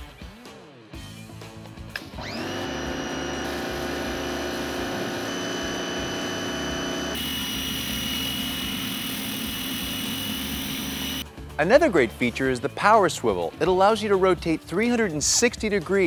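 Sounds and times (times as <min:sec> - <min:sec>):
pressure washer motor whine: 0:02.2 - 0:11.2.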